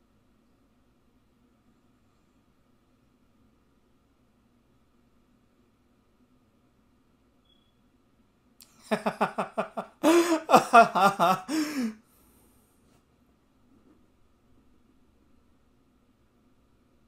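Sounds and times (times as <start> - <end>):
man laughing: 8.8 - 12.0.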